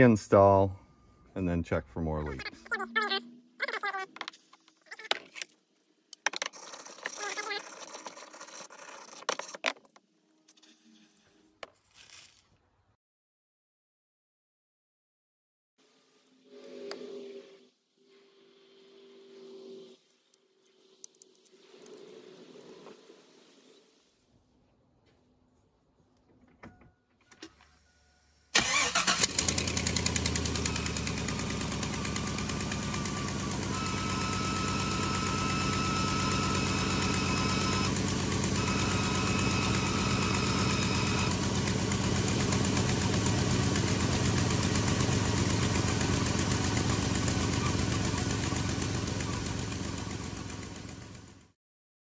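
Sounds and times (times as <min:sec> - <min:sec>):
thin high whistle: 0:16.4 - 0:20.0
truck engine starting and idling: 0:28.5 - 0:51.5.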